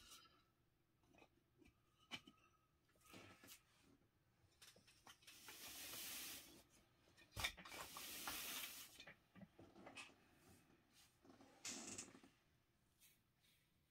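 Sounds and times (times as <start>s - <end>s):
plastic tiles sliding on mat: 5.2s - 6.6s, 7.7s - 9.0s.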